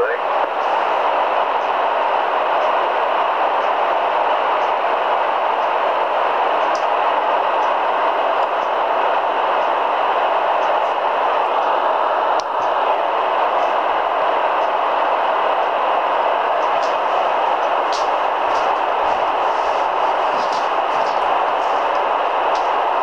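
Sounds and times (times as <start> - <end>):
radio static hiss: 0.0 - 23.0.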